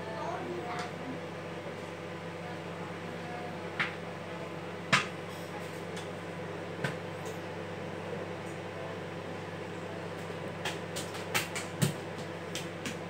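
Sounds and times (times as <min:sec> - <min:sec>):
microwave oven hum: 0:00.0 - 0:13.0
popcorn popping: 0:10.1 - 0:13.0.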